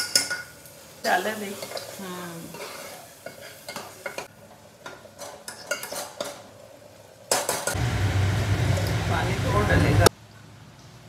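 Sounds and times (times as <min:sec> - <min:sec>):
light sizzling: 0:00.0 - 0:11.0
metal ladle scraping pot: 0:01.6 - 0:06.5
steady noise with low hum: 0:06.6 - 0:11.0.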